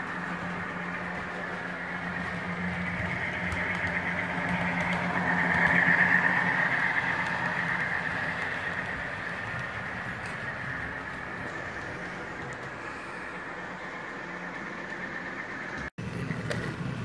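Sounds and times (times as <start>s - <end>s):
model diesel engine sound: 0.0s - 17.0s.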